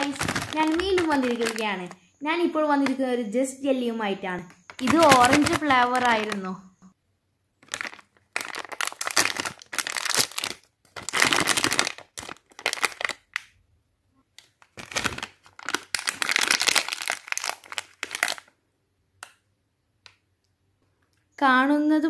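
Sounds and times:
plastic candy bag crinkling: 0:00.0 - 0:02.1, 0:04.4 - 0:06.7, 0:07.6 - 0:13.6, 0:14.3 - 0:18.6.

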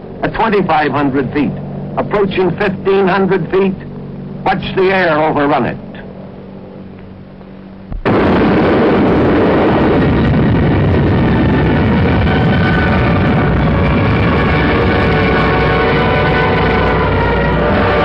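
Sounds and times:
low hum: 0:00.0 - 0:18.0
explosion blast and heavy rumble: 0:07.9 - 0:18.0.

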